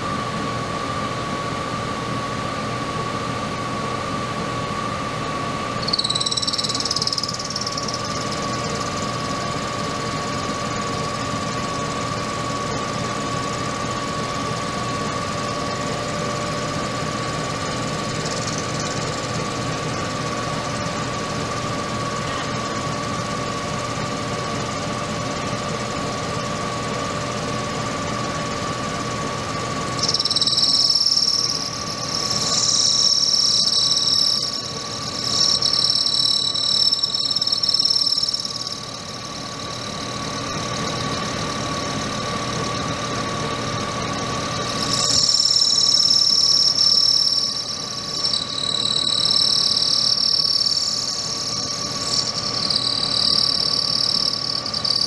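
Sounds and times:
cutting tool squealing on metal: 5.8 - 9.4, 30.0 - 41.4, 44.5 - 55.0
metal lathe running: 5.8 - 21.5, 29.0 - 55.0.

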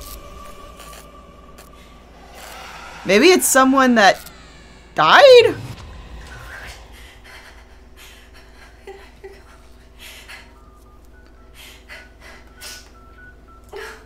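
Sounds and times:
faint high sustained music notes: 0.0 - 5.0.

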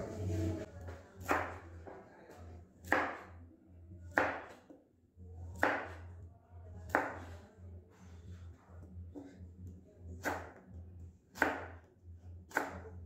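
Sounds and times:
low steady hum: 0.0 - 0.8
knife chopping on cutting board: 1.2 - 1.6, 2.8 - 3.3, 4.1 - 4.8, 5.6 - 6.0, 6.9 - 7.4, 10.2 - 10.6, 11.3 - 11.8, 12.5 - 12.9.

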